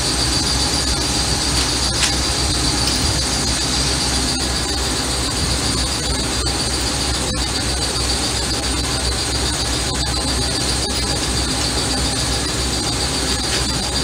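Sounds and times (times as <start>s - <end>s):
high whine: 0.0s - 14.0s
machine noise: 0.0s - 14.0s.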